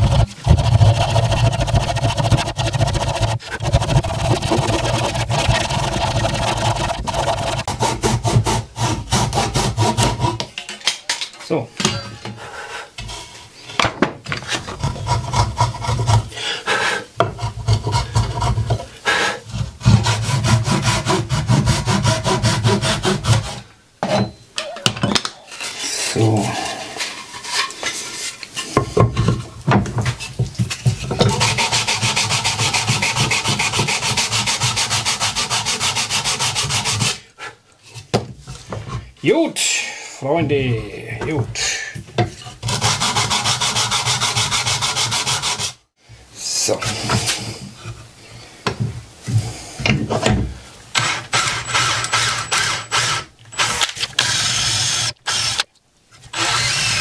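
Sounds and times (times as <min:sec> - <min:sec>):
fast scraping on wood: 0:00.0 - 0:10.5, 0:14.3 - 0:16.4, 0:17.3 - 0:23.6, 0:27.0 - 0:37.2, 0:42.4 - 0:45.8
hand saw cutting wood: 0:00.0 - 0:10.5, 0:14.4 - 0:23.7, 0:30.0 - 0:37.2, 0:42.4 - 0:45.8, 0:51.0 - 0:55.7, 0:56.3 - 0:57.0.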